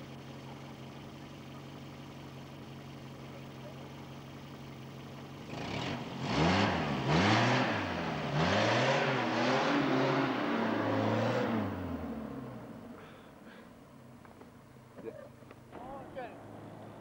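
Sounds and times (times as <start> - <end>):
car engine revving: 5.4 - 13.1.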